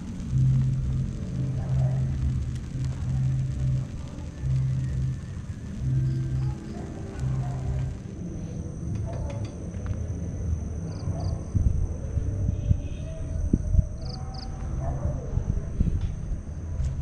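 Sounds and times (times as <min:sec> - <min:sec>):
night insects calling: 0:00.0 - 0:08.2, 0:10.8 - 0:11.6, 0:12.8 - 0:14.6
low rumble: 0:00.0 - 0:17.0.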